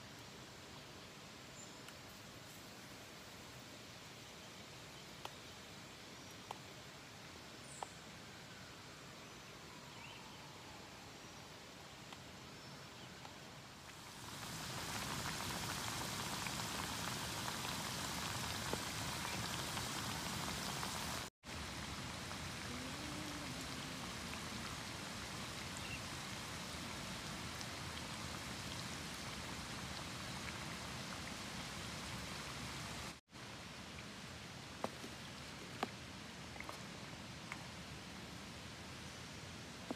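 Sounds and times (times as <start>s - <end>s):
food deep-frying in hot oil: 13.9s - 33.2s.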